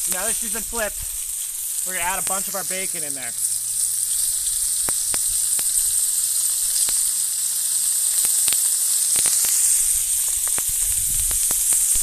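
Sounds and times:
food frying in hot oil: 0:00.0 - 0:12.0
sharp oil pops: 0:04.8 - 0:05.8, 0:10.2 - 0:12.0.

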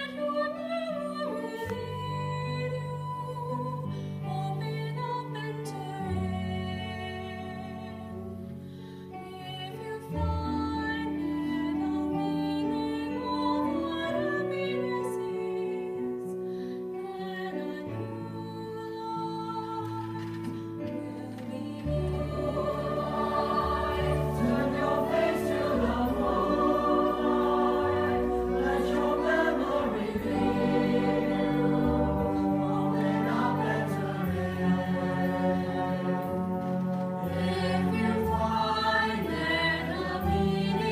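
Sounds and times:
chorus singing: 0:21.3 - 0:40.9
orchestra playing sustained chords: 0:21.8 - 0:40.9.

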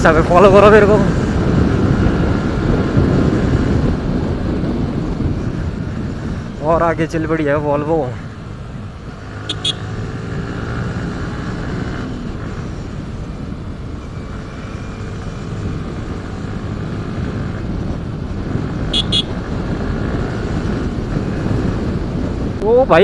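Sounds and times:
road and wind rush: 0:00.0 - 0:23.0
motorcycle engine running: 0:08.3 - 0:22.8
high-pitched horn toots: 0:09.4 - 0:10.0, 0:18.9 - 0:19.4.

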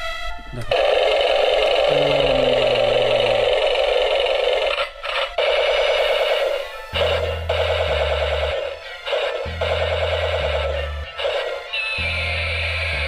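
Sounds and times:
buzzy electronic tune: 0:00.6 - 0:08.2, 0:11.8 - 0:13.0
deep bass notes: 0:01.8 - 0:04.2.

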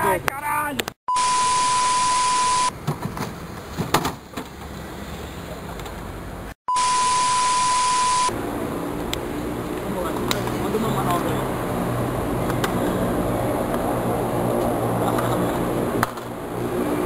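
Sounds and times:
test-tone beep: 0:01.1 - 0:02.7, 0:06.7 - 0:08.3.

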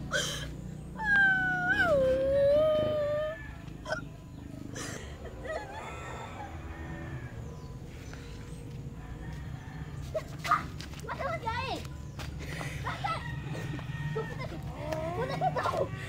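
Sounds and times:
young girl crying: 0:00.1 - 0:04.0, 0:14.2 - 0:15.9.

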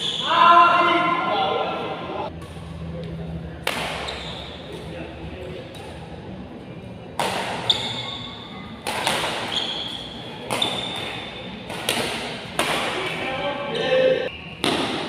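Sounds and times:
rackets hitting shuttlecock: 0:03.6 - 0:04.8, 0:07.2 - 0:08.1, 0:08.8 - 0:13.2, 0:14.6 - 0:15.0
shoes squeaking on court: 0:04.0 - 0:04.9, 0:07.6 - 0:08.6, 0:09.3 - 0:11.6.

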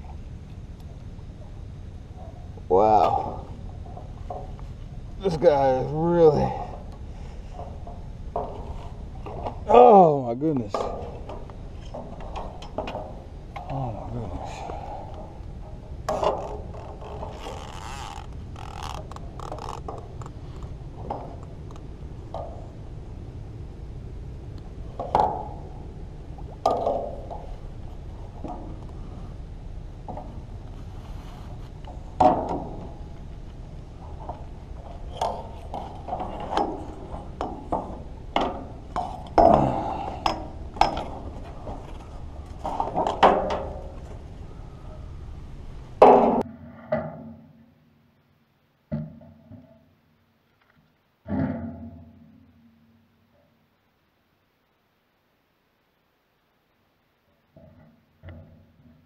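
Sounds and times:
steady low rumble: 0:00.0 - 0:46.8
gear scraping and rustling: 0:01.8 - 0:23.2, 0:24.8 - 0:46.4.

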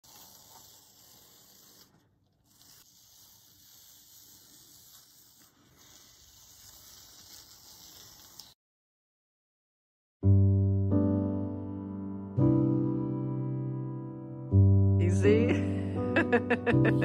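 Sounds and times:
tape peeling off paper: 0:00.0 - 0:08.6.

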